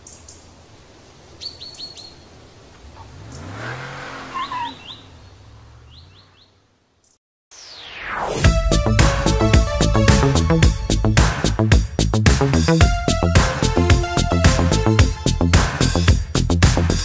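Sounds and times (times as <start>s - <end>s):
small birds chirping: 0.0s - 7.2s
car driving past: 2.8s - 6.4s.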